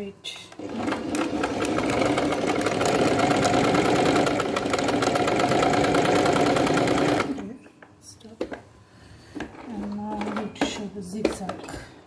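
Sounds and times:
sewing machine running: 0:00.6 - 0:07.5.

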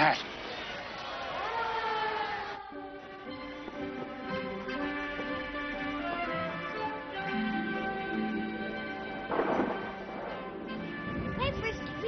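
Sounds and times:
film score with long held notes: 0:02.6 - 0:12.0.

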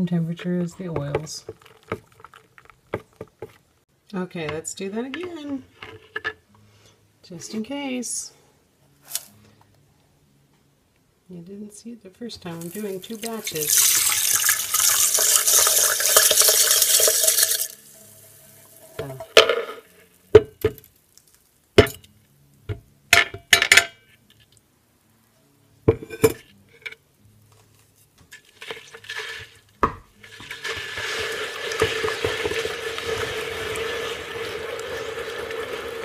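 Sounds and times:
liquid swishing when stirred: 0:01.4 - 0:03.6
lye poured into water hissing: 0:12.6 - 0:19.0, 0:30.2 - 0:36.0.

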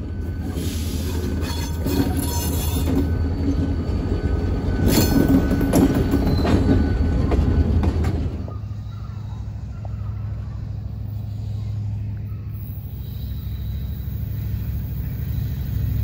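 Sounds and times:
metallic clanks and wheel squeals: 0:00.0 - 0:11.2
diesel locomotive rumbling: 0:00.0 - 0:16.0.

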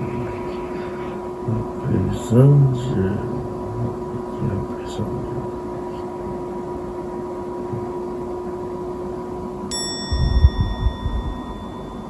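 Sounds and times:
room hum: 0:00.0 - 0:12.0
bright bell-like chime: 0:09.7 - 0:12.0.

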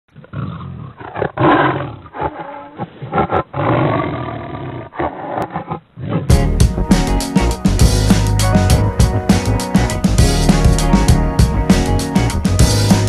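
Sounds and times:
tiger roaring and growling: 0:00.1 - 0:06.5.

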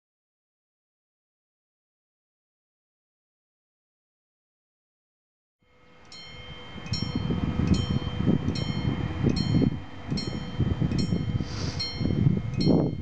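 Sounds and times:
level-crossing warning bell: 0:05.6 - 0:13.0
wind rumble on microphone: 0:06.3 - 0:13.0.

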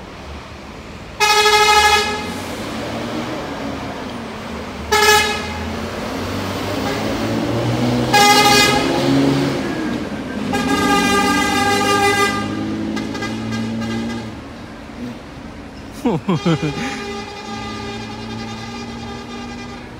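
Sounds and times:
bus engine running low: 0:00.0 - 0:19.9
bus horn blasts: 0:01.2 - 0:02.4, 0:04.9 - 0:05.8, 0:06.7 - 0:09.4, 0:10.4 - 0:14.5, 0:16.1 - 0:19.9.

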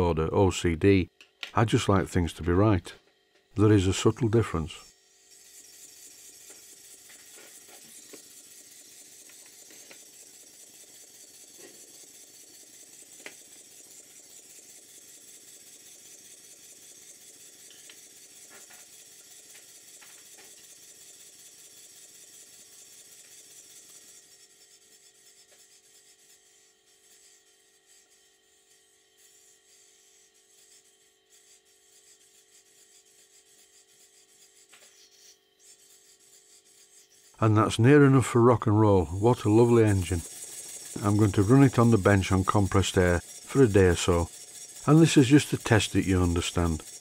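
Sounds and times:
model steam engine exhaust hiss: 0:03.7 - 0:24.8, 0:39.1 - 0:47.0.

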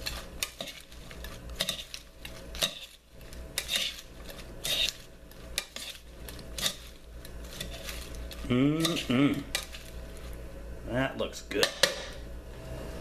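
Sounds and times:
metal tongs clinking on bowl: 0:00.0 - 0:09.9.

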